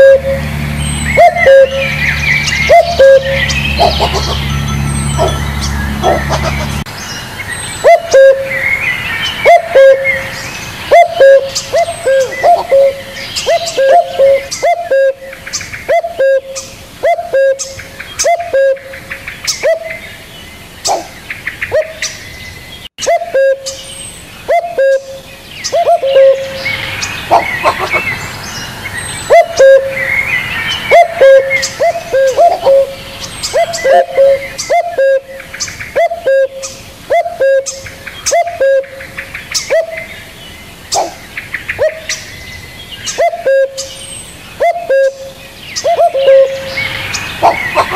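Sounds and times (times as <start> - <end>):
dove cooing: 0.0 - 0.4, 1.2 - 2.0, 2.6 - 4.6, 5.2 - 6.8, 7.8 - 8.6, 9.4 - 15.3, 15.9 - 18.9, 23.0 - 23.8, 24.5 - 28.2, 29.3 - 30.1, 30.9 - 35.4, 36.0 - 39.0, 40.9 - 41.2, 43.2 - 43.9, 44.6 - 47.9
higher bird chirps: 0.0 - 47.9.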